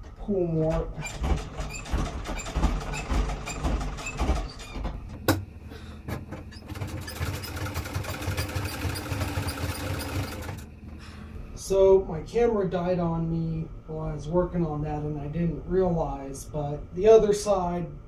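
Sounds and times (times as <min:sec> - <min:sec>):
sewing machine stitching: 0:01.0 - 0:05.0, 0:06.4 - 0:10.7.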